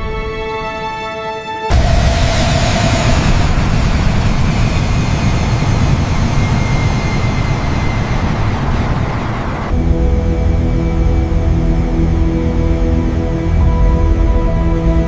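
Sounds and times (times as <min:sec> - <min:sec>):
jet engines rumbling: 0:01.7 - 0:14.2.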